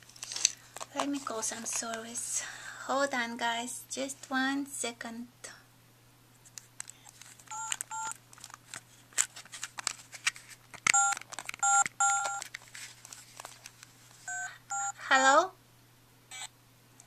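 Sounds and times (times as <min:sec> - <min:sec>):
two-tone keypad beeps: 0:11.0 - 0:12.4, 0:14.3 - 0:15.0.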